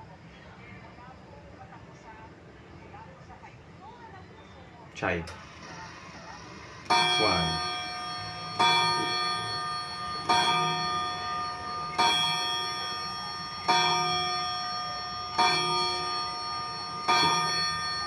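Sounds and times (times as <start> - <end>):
clock chime rods striking: 6.8 - 18.0.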